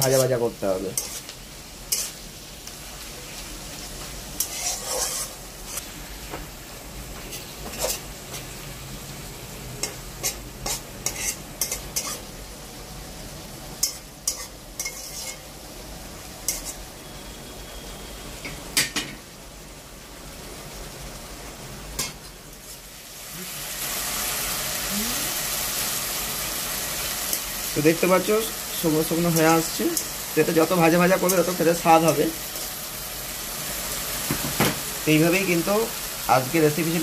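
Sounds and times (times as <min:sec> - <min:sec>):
greens sizzling in oil: 0:00.0 - 0:37.0
spatula scraping and tapping pan: 0:01.0 - 0:01.3, 0:01.9 - 0:02.2, 0:04.4 - 0:06.4, 0:07.2 - 0:08.5, 0:09.8 - 0:12.2, 0:13.8 - 0:15.4, 0:16.5 - 0:16.8.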